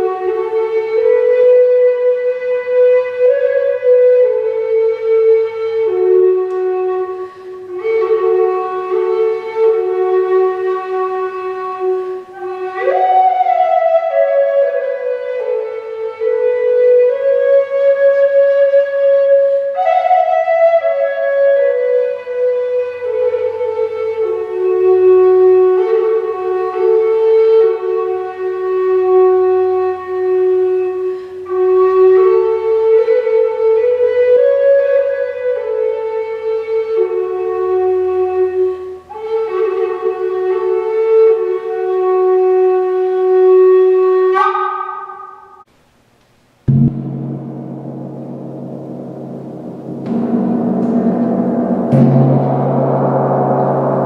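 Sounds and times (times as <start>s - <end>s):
wooden flute melody: 0.0s - 45.7s
gong ringing: 46.7s - 54.0s.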